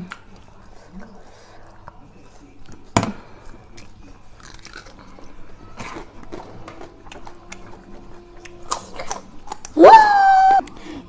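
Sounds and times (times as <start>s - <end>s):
crunchy chewing: 0.4s - 9.8s.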